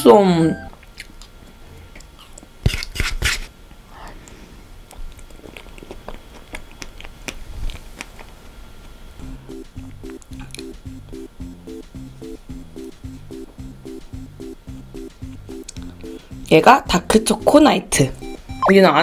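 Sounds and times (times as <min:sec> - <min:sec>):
wet lip smacks and clicks: 0:02.0 - 0:03.4, 0:04.9 - 0:08.4, 0:15.6 - 0:15.9.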